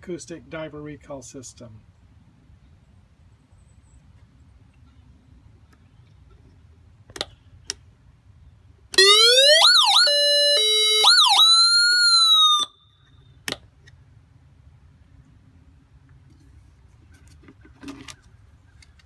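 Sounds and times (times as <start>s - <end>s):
electronic siren tones: 9.0s - 12.8s.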